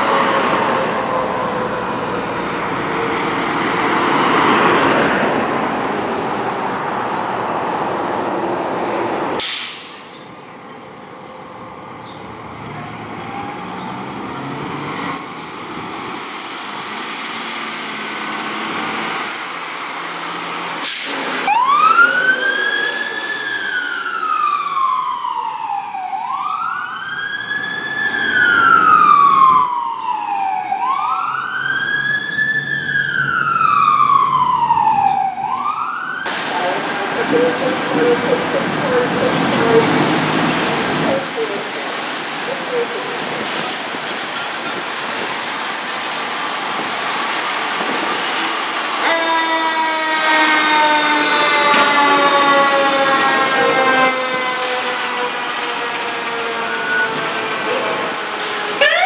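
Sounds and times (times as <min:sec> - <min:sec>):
truck and road noise: 0:00.0 - 0:59.0
electronic wail siren: 0:21.4 - 0:36.3, 0:49.0 - 0:59.0
held siren tone: 0:21.4 - 0:36.3, 0:49.0 - 0:59.0.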